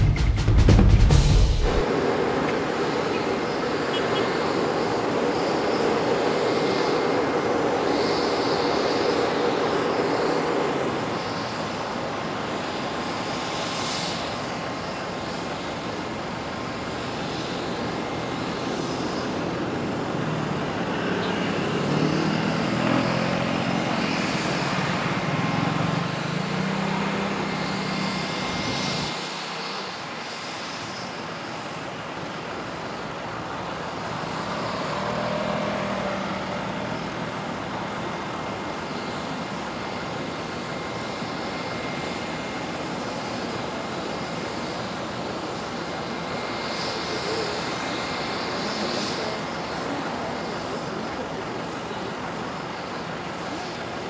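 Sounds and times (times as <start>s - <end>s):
jet aircraft whine: 0.0s - 54.0s.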